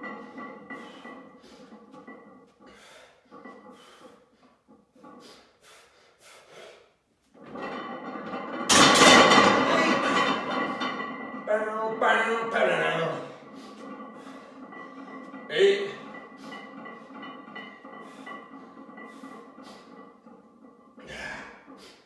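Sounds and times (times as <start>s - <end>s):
short sharp breaths: 5.2s - 7.0s.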